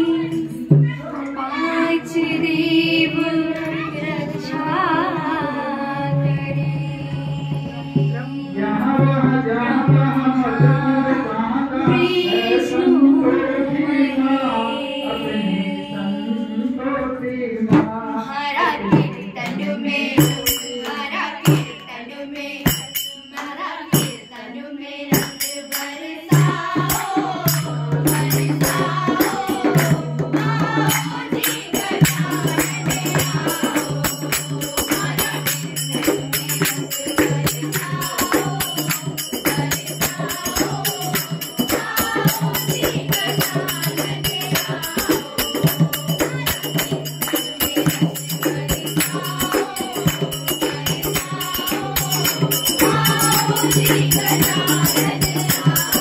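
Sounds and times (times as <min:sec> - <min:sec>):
voices singing: 0:00.0 - 0:56.0
fast shaken percussion: 0:25.1 - 0:56.0.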